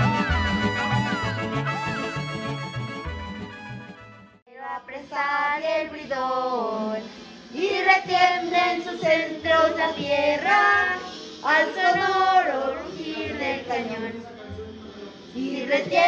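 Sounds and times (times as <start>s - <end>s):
musical accompaniment: 0.0s - 4.4s.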